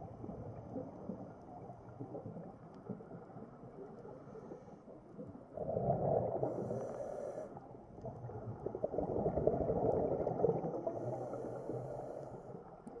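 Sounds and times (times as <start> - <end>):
diver exhaling bubbles underwater: 5.6 - 6.9, 8.1 - 11.2.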